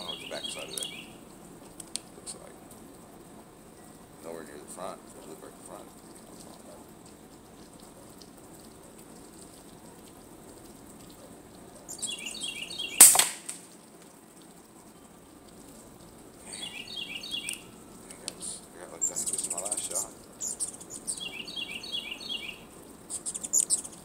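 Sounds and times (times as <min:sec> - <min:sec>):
songbird chirping: 0:00.0 - 0:13.6, 0:14.3 - 0:24.0
faint background hiss: 0:00.0 - 0:24.0
air rifle shot: 0:13.0 - 0:13.6.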